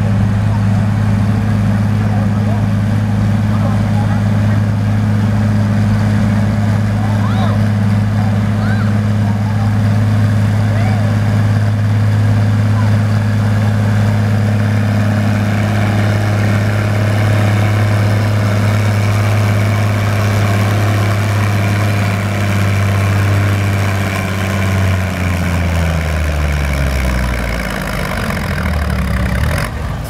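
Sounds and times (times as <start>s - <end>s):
tractor engine running under load: 0.0s - 30.0s.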